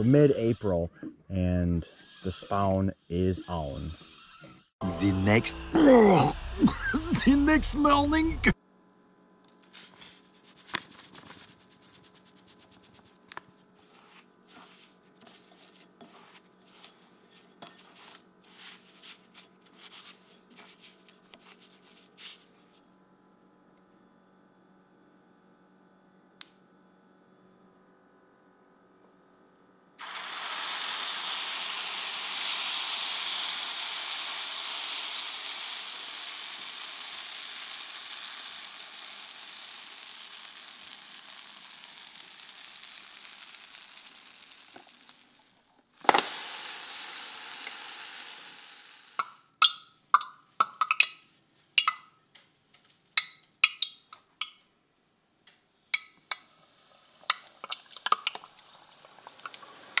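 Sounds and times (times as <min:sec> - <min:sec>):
batter sizzling on waffle iron: 0:09.6 - 0:22.4, 0:30.0 - 0:49.4, 0:56.0 - 1:00.0
sharp clicks and pops: 0:49.2 - 0:51.2, 0:51.8 - 0:54.8, 0:57.2 - 0:58.6.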